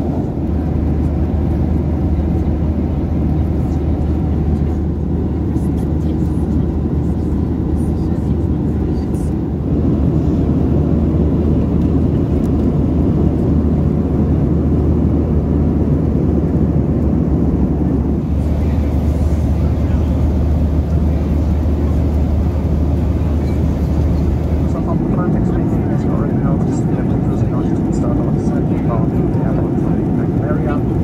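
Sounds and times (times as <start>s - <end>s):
jet engines droning: 0.0s - 31.0s
airflow rush over fuselage: 9.4s - 31.0s.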